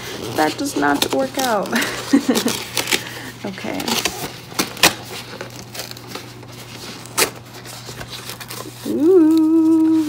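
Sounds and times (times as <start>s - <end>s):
cardboard flap tearing: 0.0s - 10.0s
cardboard snapping: 3.7s - 6.3s.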